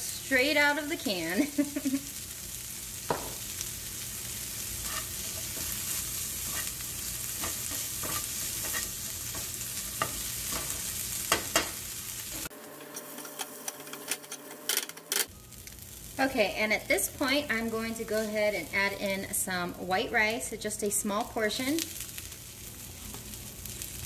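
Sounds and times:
vegetables sizzling in a frying pan: 0.0 - 13.2, 15.2 - 24.0
spatula scraping and tapping pan: 4.8 - 11.8.

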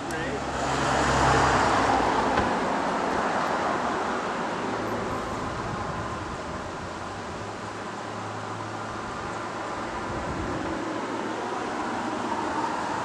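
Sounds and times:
rushing road traffic: 0.0 - 13.0.

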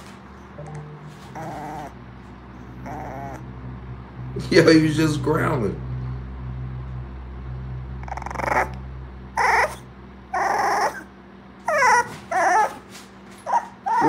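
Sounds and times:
puppy whimpering and grunting: 0.7 - 2.0, 2.6 - 3.5, 8.0 - 8.8, 9.4 - 14.0.

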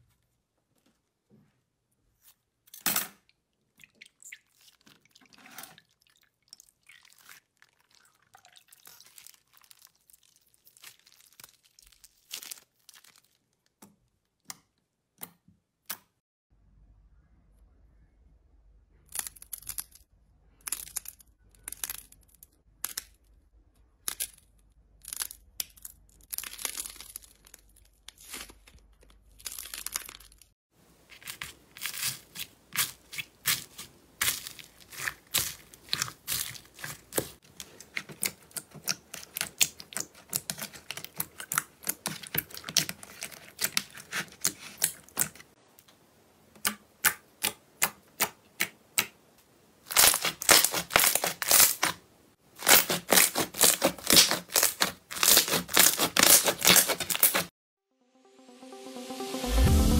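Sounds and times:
crackly squishing of clay: 5.8 - 14.5, 25.2 - 45.6, 46.6 - 57.5
slime crackling and popping: 7.0 - 13.8, 31.2 - 45.3, 49.9 - 52.0, 52.6 - 57.5.

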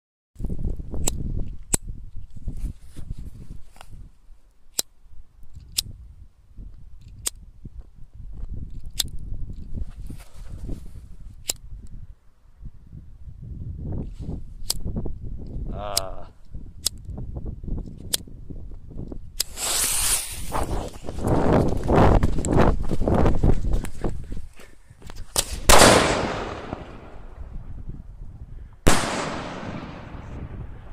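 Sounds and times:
firework shell bursting: 19.4 - 20.8
mortar launch bang: 25.6 - 27.4, 28.9 - 30.7
echo of bangs: 25.7 - 27.4, 28.9 - 30.7.

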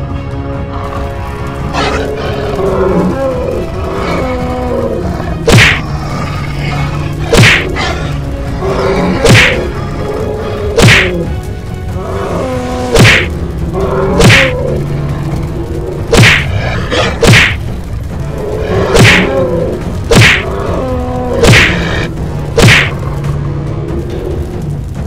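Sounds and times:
background music: 0.0 - 25.0
heavy hit sound effects: 21.4 - 23.0.

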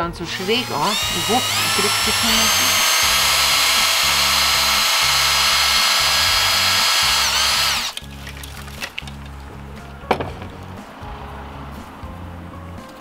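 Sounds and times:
cordless drill whining: 0.0 - 8.0
background music: 0.0 - 13.0.

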